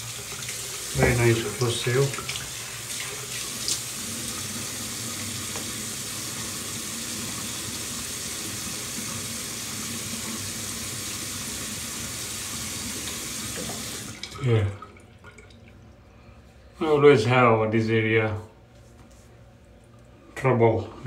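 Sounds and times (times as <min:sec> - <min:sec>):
tap running into sink: 0:05.4 - 0:05.8, 0:13.0 - 0:14.4.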